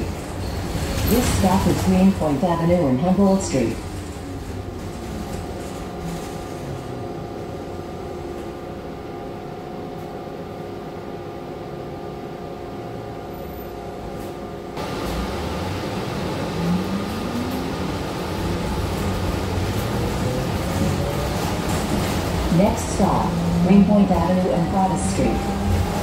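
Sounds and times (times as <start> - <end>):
bus engine idling: 14.8 - 26.0.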